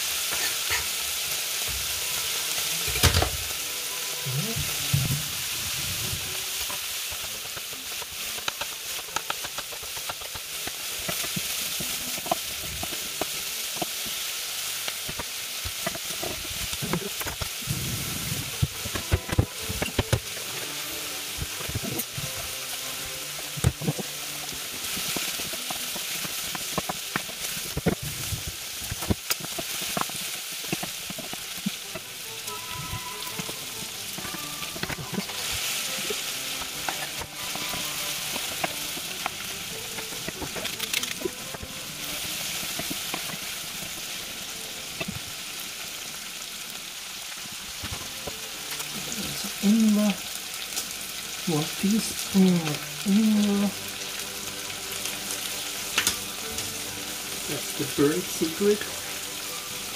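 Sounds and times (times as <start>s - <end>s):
meat sizzling in a frying pan: 0.0s - 59.9s.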